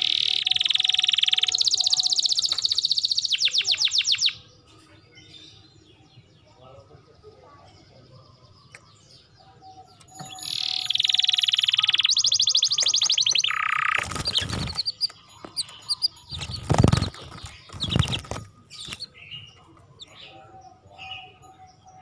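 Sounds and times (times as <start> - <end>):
canary singing trills: 0.0 - 22.0
rustling bursts: 13.9 - 15.1, 16.0 - 19.1.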